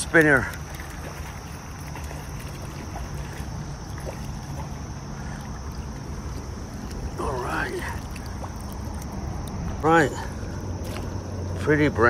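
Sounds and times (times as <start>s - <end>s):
fast-flowing creek rushing: 0.0s - 9.2s.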